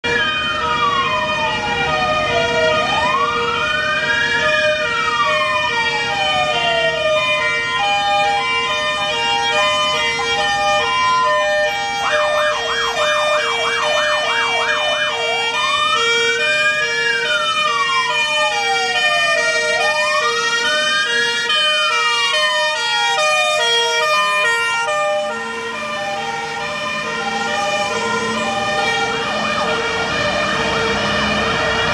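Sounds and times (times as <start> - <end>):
fire engine siren wailing: 0.0 - 31.9.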